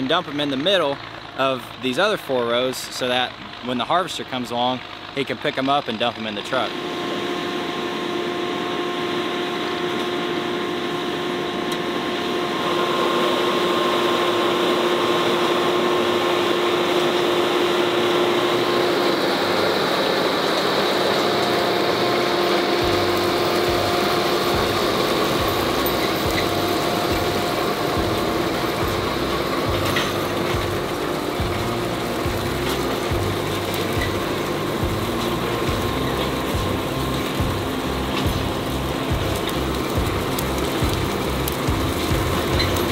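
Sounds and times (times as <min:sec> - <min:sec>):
tractor engine running: 0:00.0 - 0:42.9
chains clattering and rattling: 0:24.6 - 0:39.8.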